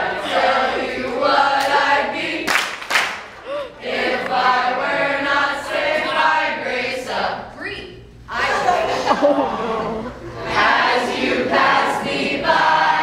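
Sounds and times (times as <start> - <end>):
group singing unaccompanied: 0.0 - 2.8, 3.8 - 7.5, 10.4 - 13.0.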